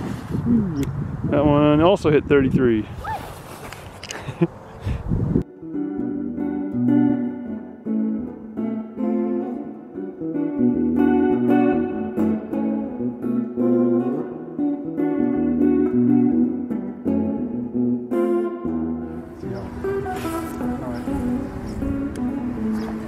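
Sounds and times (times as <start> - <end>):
guitar background music: 5.4 - 23.0.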